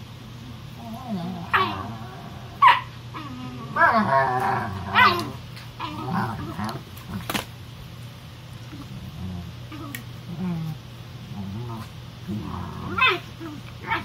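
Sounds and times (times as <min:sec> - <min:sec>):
dogs play growling: 0:00.4 - 0:07.5, 0:08.6 - 0:14.0
dog yelp: 0:02.6 - 0:03.3.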